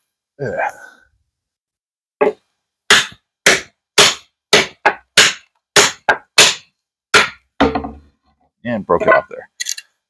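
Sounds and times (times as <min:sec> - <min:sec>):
knife chopping wood: 0:02.2 - 0:08.0.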